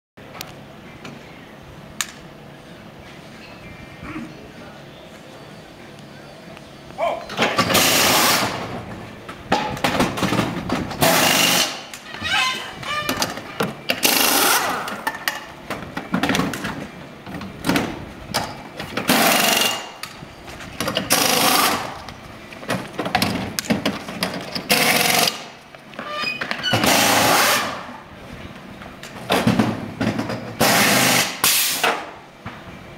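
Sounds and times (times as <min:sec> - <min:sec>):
air impact wrenches firing: 0:07.4 - 0:08.6, 0:11.0 - 0:11.9, 0:30.6 - 0:32.1.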